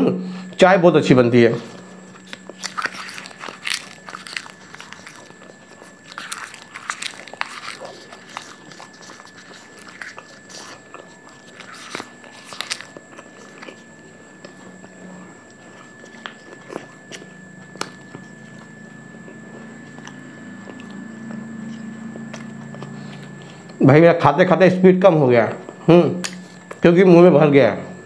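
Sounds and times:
person chewing crunchy leaves: 1.6 - 23.8, 25.6 - 26.8.

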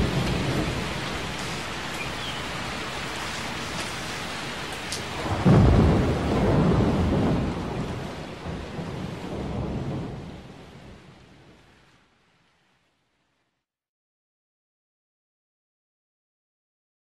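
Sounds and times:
thunder rumbling: 0.0 - 11.6
steady rain: 0.0 - 13.6.

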